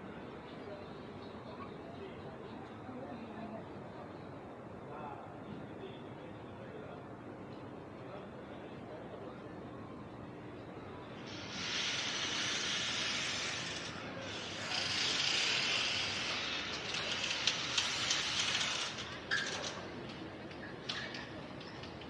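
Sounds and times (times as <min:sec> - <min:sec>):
loud hiss: 0:11.2 - 0:16.6.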